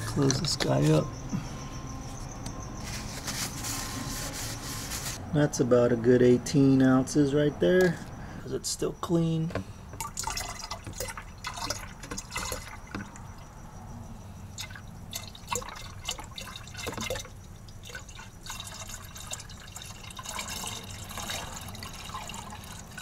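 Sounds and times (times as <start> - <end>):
liquid pouring into plastic jug: 10.0 - 13.2, 14.6 - 23.0.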